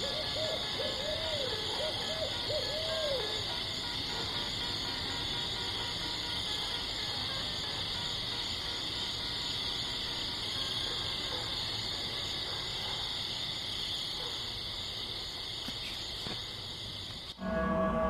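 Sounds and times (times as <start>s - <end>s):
high-pitched insect chorus: 0.0s - 18.0s.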